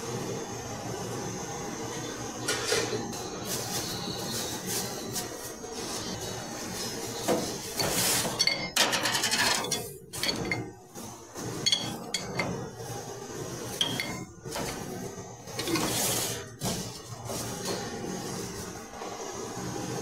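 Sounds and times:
bread scraping and rustling: 3.2 - 10.2.

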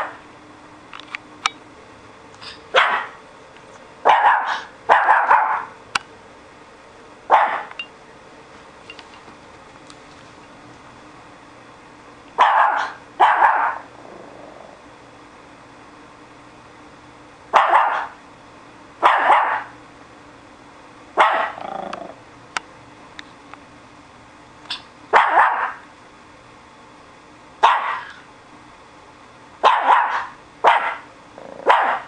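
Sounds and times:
dog barking: 2.7 - 3.2, 4.0 - 5.8, 7.3 - 7.7, 12.4 - 13.9, 17.5 - 18.2, 19.0 - 19.8, 21.2 - 21.6, 25.1 - 25.8, 27.6 - 28.2, 29.6 - 32.0.

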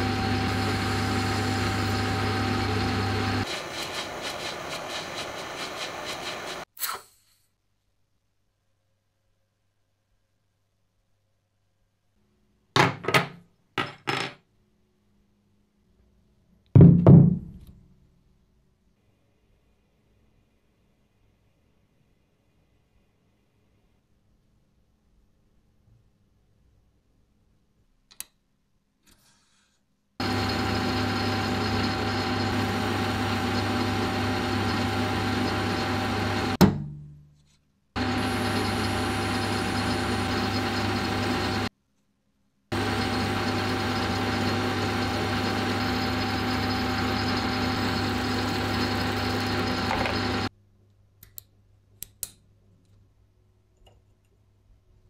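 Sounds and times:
machine tool motor whining: 0.0 - 6.6, 30.2 - 36.6, 38.0 - 41.7, 42.7 - 50.5.

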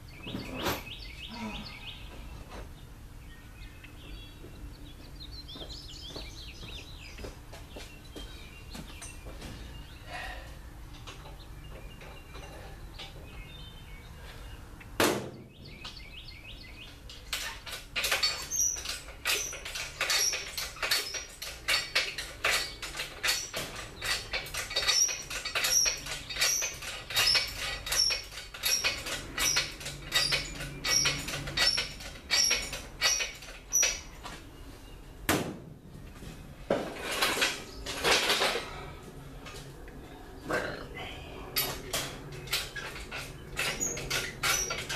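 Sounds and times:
rhythmic metallic clank and squeak: 10.9 - 13.7, 16.8 - 34.6, 41.6 - 44.9.

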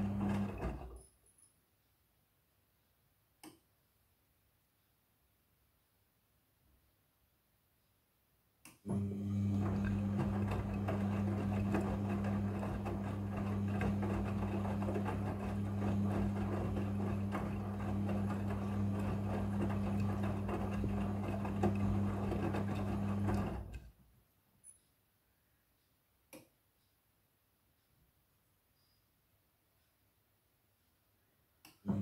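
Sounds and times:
washing machine motor humming: 0.0 - 1.0, 8.9 - 23.9.

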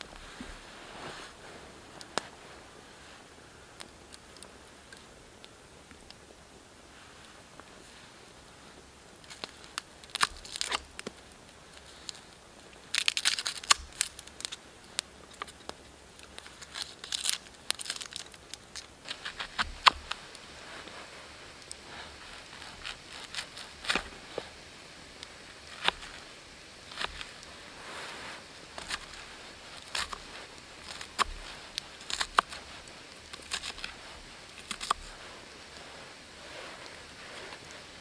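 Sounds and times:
knife scraping wood: 25.6 - 37.7.

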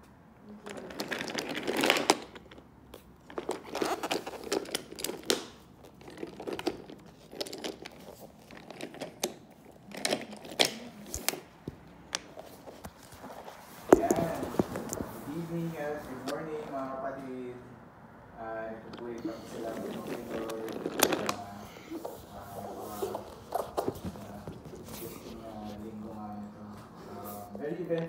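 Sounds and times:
camera handling rustle: 12.2 - 15.3.

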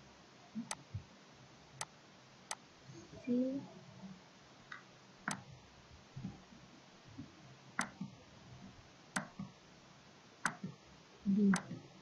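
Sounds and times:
computer mouse clicks: 4.7 - 5.5, 7.8 - 8.2, 9.2 - 9.5, 10.4 - 10.8, 11.5 - 11.8.

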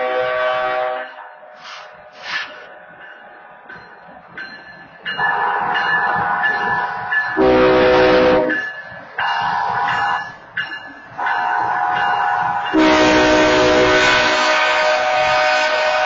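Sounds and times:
locomotive air horn: 0.0 - 1.1, 7.4 - 8.6, 12.7 - 16.0
high-pitched crossing horn: 12.8 - 16.0.

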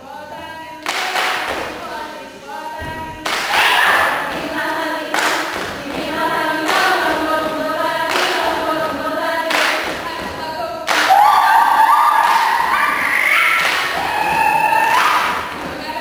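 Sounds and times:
group chanting in unison: 0.0 - 16.0
hand claps and body slaps: 0.8 - 1.8, 3.2 - 4.5, 5.1 - 7.0, 8.1 - 8.5, 9.5 - 10.0, 10.9 - 11.4, 12.2 - 12.8, 13.5 - 14.4.

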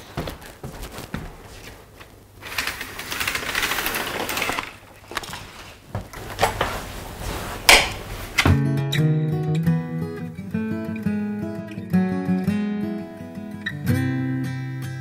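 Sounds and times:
blind slats clattering: 2.4 - 8.5.

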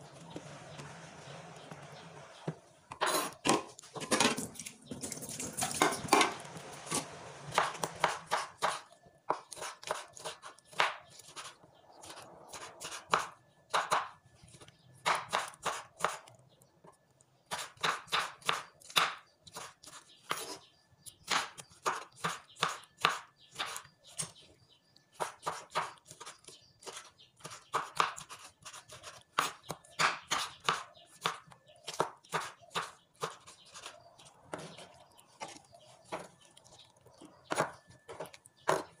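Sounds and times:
knife chopping on wooden board: 7.5 - 11.5, 12.1 - 14.2, 15.0 - 16.2, 17.5 - 20.6, 21.2 - 23.8, 25.2 - 33.9, 37.4 - 39.0.

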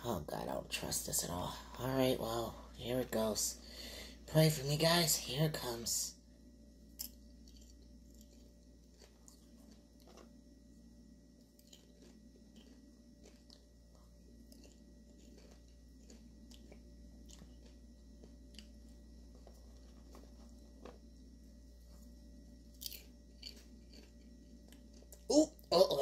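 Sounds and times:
popcorn being chewed: 6.9 - 26.0.

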